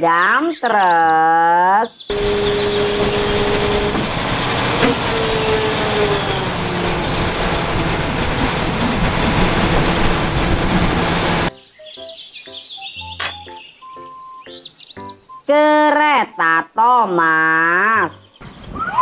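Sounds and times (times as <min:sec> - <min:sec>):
birds chirping: 0:00.0 - 0:19.0
hydraulic whine: 0:02.1 - 0:11.5
truck diesel engine running: 0:02.1 - 0:11.5.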